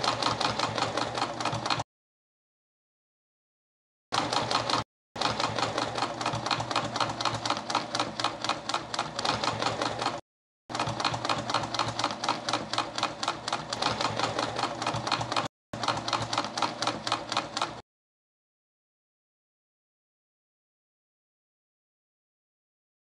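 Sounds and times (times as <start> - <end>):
sewing machine stitching: 0.0 - 1.9, 4.1 - 17.8.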